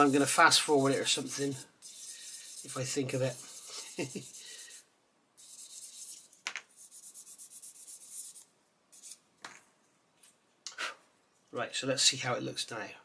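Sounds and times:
sanding stick rasping on plastic: 0.0 - 4.8, 5.4 - 8.4.

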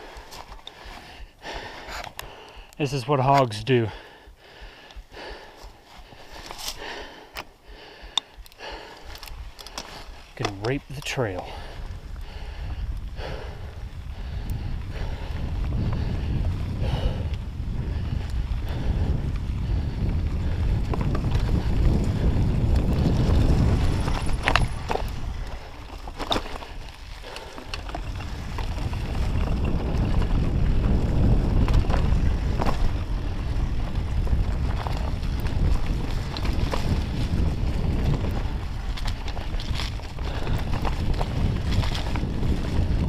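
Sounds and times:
tyres on dirt and leaves: 5.3 - 7.6, 8.3 - 12.5, 22.9 - 30.6, 31.6 - 43.0
wind rumble on microphone: 8.0 - 43.0
bike clicks and knocks: 8.1 - 11.6, 20.8 - 22.1, 22.7 - 43.0.

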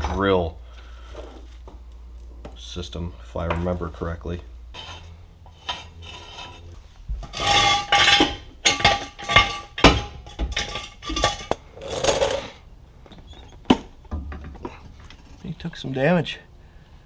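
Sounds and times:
metal jack stands clanking: 7.2 - 12.4.

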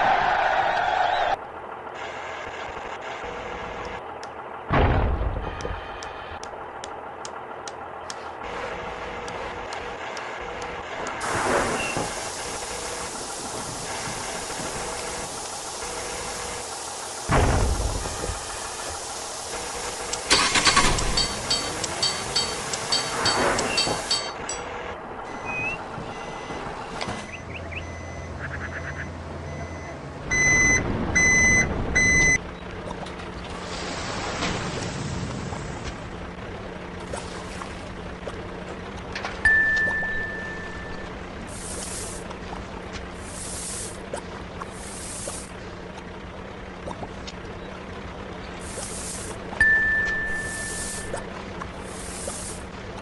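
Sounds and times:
regular ticking: 6.0 - 8.3, 20.0 - 24.6
truck reversing beeper: 8.4 - 32.7, 39.4 - 42.2, 48.6 - 51.3.

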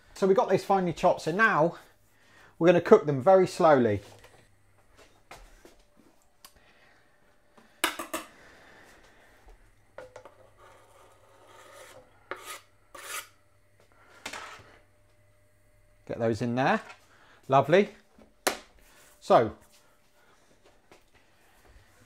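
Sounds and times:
knife scraping chopping board: 10.4 - 13.4.

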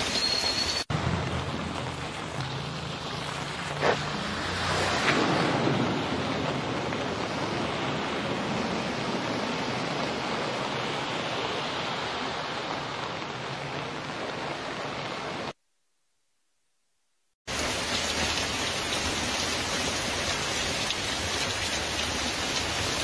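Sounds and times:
floodwater rushing: 0.0 - 15.5, 17.5 - 23.0
motorcycle splashing through water: 1.1 - 11.1.

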